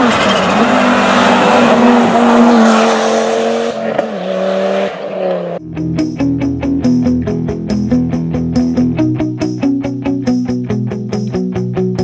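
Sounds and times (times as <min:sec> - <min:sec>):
rally car engine at high revs: 0:00.0 - 0:05.6
guitar music: 0:05.6 - 0:12.0.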